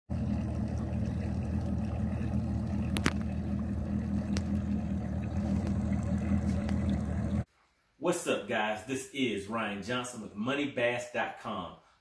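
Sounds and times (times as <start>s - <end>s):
outboard motor idling: 0.1s - 7.5s.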